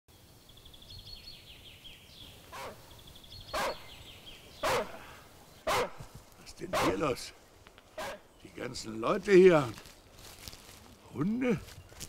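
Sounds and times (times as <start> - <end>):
songbird trilling: 0.6 - 6.0
dog barking: 4.6 - 5.1, 5.7 - 6.0, 6.8 - 7.0.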